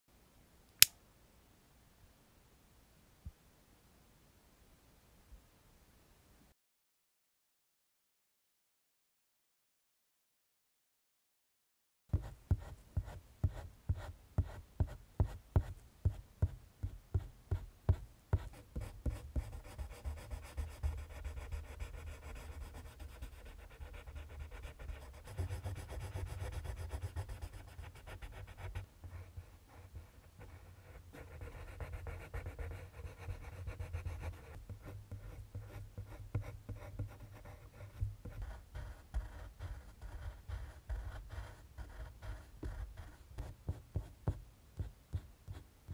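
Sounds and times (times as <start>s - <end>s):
colored pencil scratching on paper: 12.1s - 45.6s.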